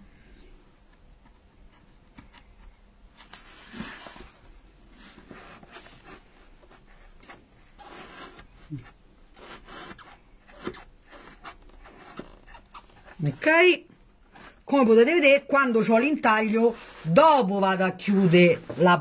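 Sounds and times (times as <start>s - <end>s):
tool rubbing felt into foam: 3.3s - 13.7s.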